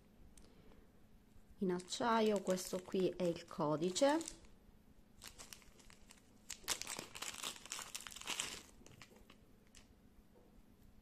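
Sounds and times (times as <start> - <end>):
plastic bag crinkling: 1.6 - 4.6, 5.2 - 9.9.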